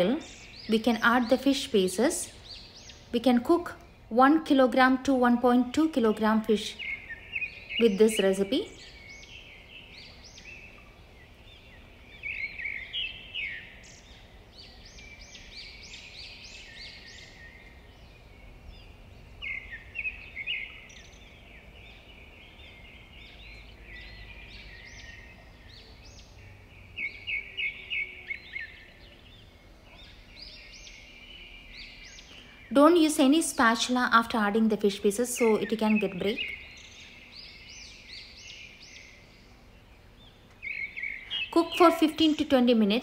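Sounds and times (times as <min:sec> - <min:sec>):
birds chirping: 0:00.0 - 0:43.0.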